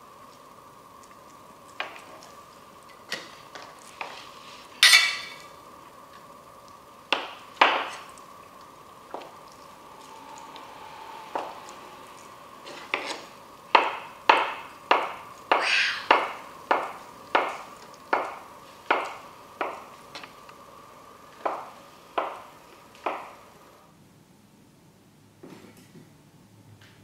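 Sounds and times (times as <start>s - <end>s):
faint high hum: 7.8s - 25.4s.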